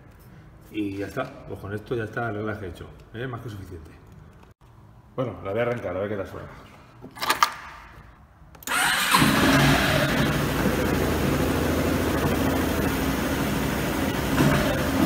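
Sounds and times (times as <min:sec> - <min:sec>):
electric starter whir: 0:08.6 - 0:15.0
scooter engine idling: 0:08.7 - 0:15.0.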